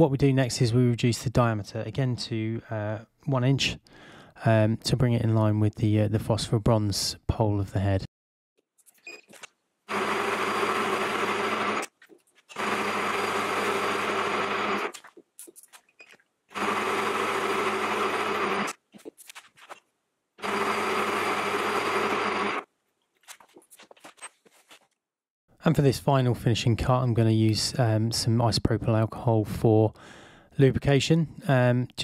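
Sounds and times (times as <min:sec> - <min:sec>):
metal lathe cutting: 0:09.9 - 0:11.9, 0:12.5 - 0:14.9, 0:16.6 - 0:18.7, 0:20.4 - 0:22.6.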